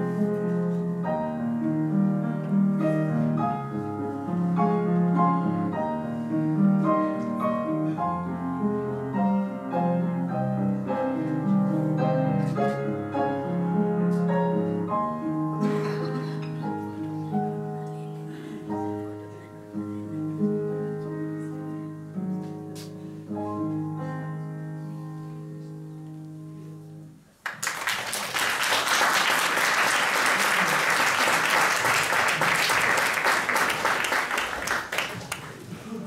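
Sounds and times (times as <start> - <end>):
piano playing slow chords: 0.0 - 27.3
audience applause: 27.4 - 36.0.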